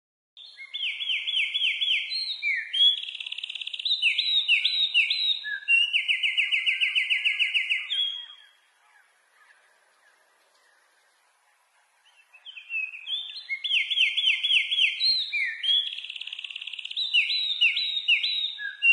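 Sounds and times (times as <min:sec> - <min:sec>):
wren singing rapid trills: 0:00.4 - 0:08.6, 0:12.1 - 0:18.9.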